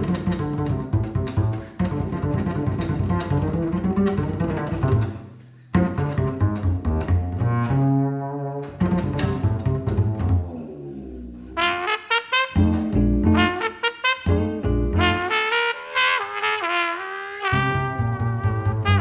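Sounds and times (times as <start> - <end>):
instrumental background music: 12.3 - 15.4.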